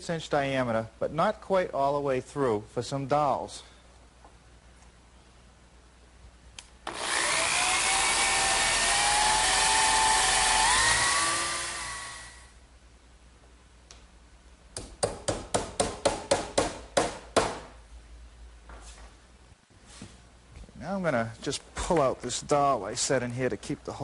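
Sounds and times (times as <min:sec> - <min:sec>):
electric drill boring wood: 0:06.8 - 0:12.5.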